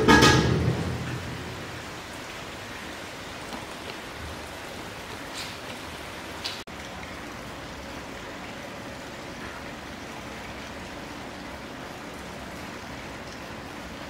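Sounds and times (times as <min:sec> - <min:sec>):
water spraying hiss: 0:00.5 - 0:06.7.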